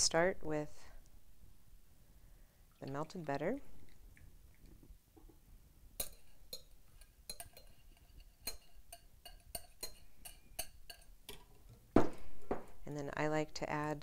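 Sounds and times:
spatula scraping glass bowl: 6.0s - 11.1s.

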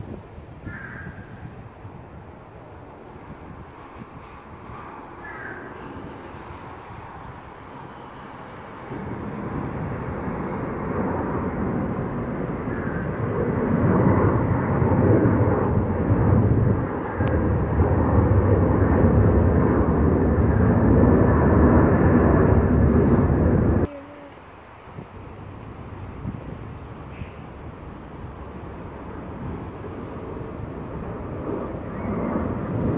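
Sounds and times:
jet engines rumbling: 0.0s - 32.9s.

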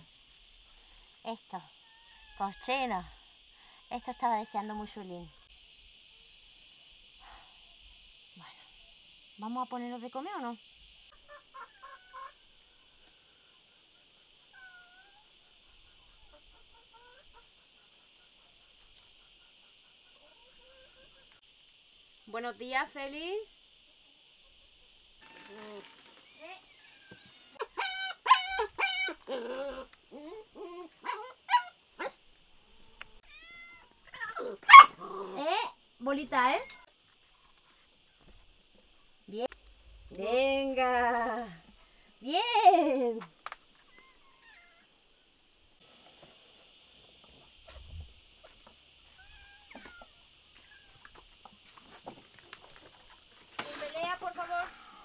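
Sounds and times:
steady high hiss: 0.0s - 55.0s
puppy whining and yelping: 27.2s - 31.7s
cat meowing: 33.2s - 34.4s.

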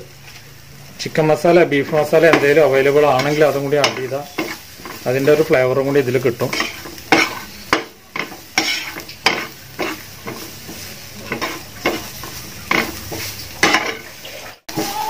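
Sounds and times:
food sizzling in oil: 0.0s - 15.0s
spatula scraping a pan: 1.5s - 15.0s.

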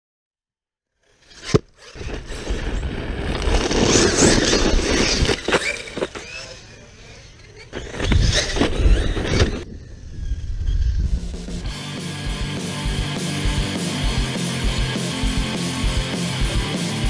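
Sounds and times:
tyres spraying gravel: 1.8s - 6.9s.

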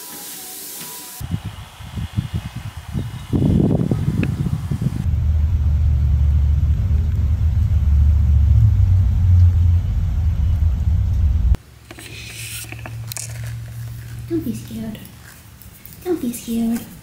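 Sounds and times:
deep rainstorm rumble: 1.2s - 11.6s.

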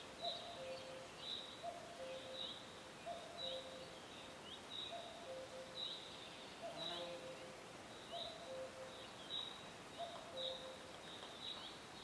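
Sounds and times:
steady hiss: 5.5s - 10.0s, 10.6s - 12.0s.

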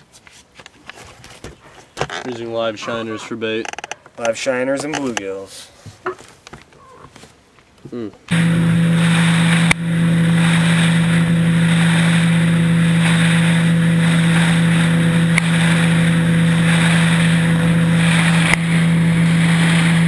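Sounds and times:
motorboat engine running: 8.3s - 20.0s
wind and water rushing: 8.3s - 20.0s.

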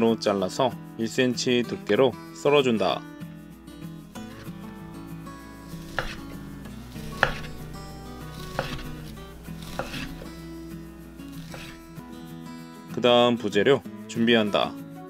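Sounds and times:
knife slicing fish cakes: 5.6s - 10.4s, 11.2s - 11.9s
knife knocking on cutting board: 5.8s - 6.3s, 7.1s - 7.7s, 8.3s - 9.0s, 9.6s - 10.3s, 11.4s - 11.8s.

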